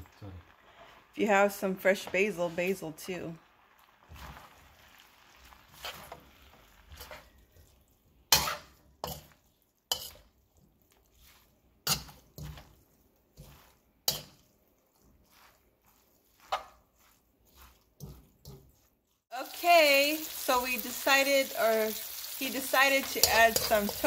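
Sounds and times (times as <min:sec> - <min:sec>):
metal spatula scraping a wok: 0:04.0 - 0:19.0, 0:21.9 - 0:24.0.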